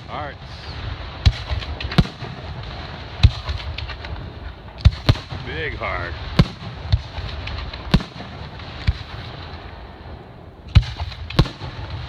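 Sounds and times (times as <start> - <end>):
firework crackles: 0.0 - 12.0
firework shells bursting: 0.0 - 12.0
steady low rumble: 0.0 - 12.0.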